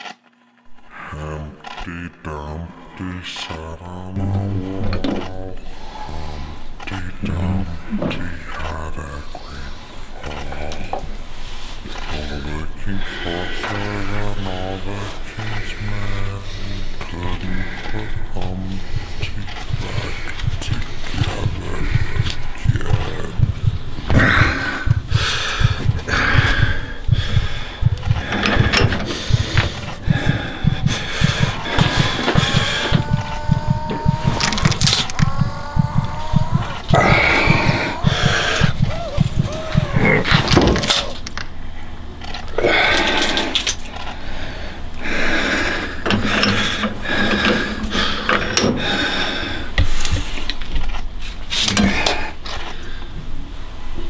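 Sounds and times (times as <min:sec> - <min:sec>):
low steady pulse: 0:04.0 - 0:40.3
sharp clicks: 0:18.7 - 0:41.5.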